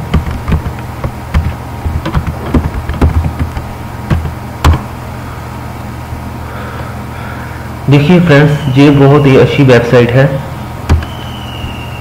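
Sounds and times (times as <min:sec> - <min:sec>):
computer keyboard typing: 0:00.0 - 0:04.8
steady low hum: 0:00.0 - 0:12.0.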